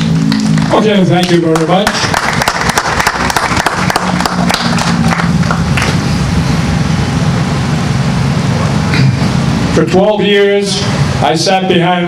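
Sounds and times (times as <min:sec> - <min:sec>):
low engine hum: 0:00.0 - 0:12.0
applause: 0:00.3 - 0:06.0.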